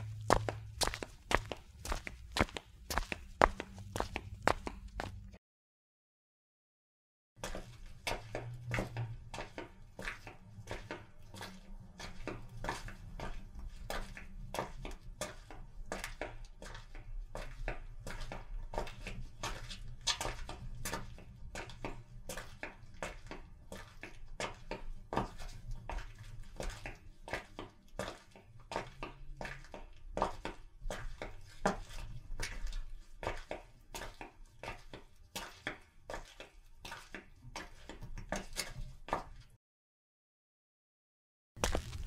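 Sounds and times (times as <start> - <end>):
quick footsteps: 0.0 - 5.4, 41.6 - 42.0.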